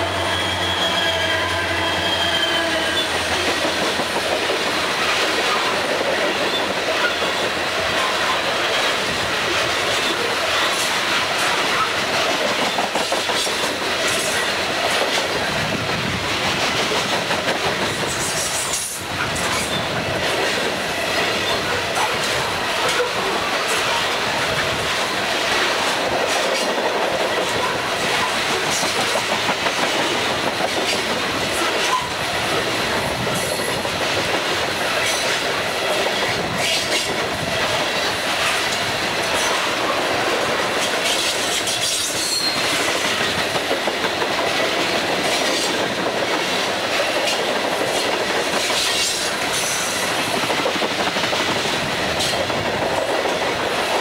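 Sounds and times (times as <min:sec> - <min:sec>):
high-pitched wheel squeals: 0:00.0 - 0:03.4, 0:42.2 - 0:42.6
freight train rumbling past: 0:00.0 - 0:54.0
wheels clacking over rail joints: 0:02.1 - 0:54.0.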